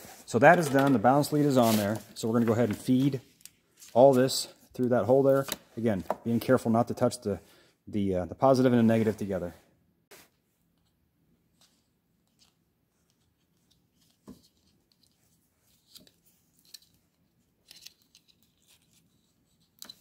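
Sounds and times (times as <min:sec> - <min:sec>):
clicks and rustles of wires: 0:12.3 - 0:20.0.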